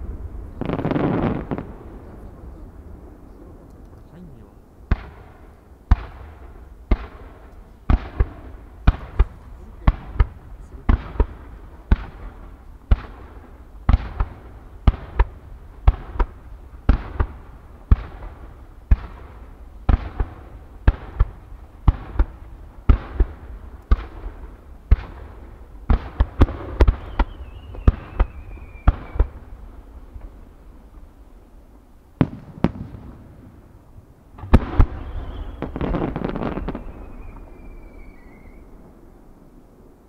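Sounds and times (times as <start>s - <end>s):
fireworks sharp reports: 0.0s - 30.4s, 34.4s - 39.6s
firework whistle: 26.8s - 29.4s, 34.7s - 38.8s.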